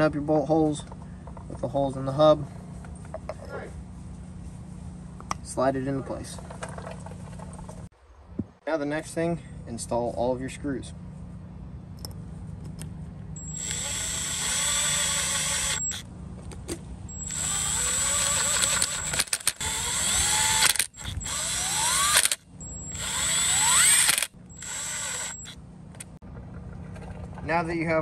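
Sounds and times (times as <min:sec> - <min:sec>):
impact driver driving screws: 0:13.4 - 0:16.0, 0:17.1 - 0:25.6.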